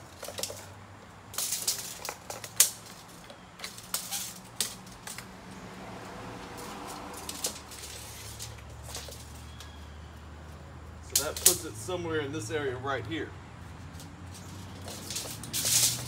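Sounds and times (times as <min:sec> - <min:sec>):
tape measure clicking and rattling: 0:01.3 - 0:05.2, 0:06.6 - 0:09.3, 0:11.1 - 0:11.7, 0:13.9 - 0:16.0.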